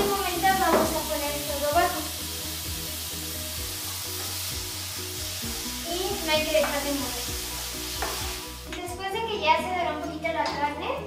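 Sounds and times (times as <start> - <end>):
meat sizzling in oil: 0.0 - 8.7
background music: 0.0 - 11.0.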